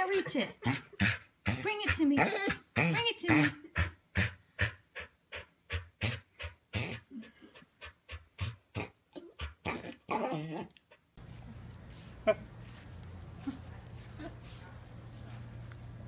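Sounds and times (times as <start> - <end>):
dog panting rapidly: 1.0 - 2.2, 3.3 - 8.7
steady low hum: 11.2 - 16.0.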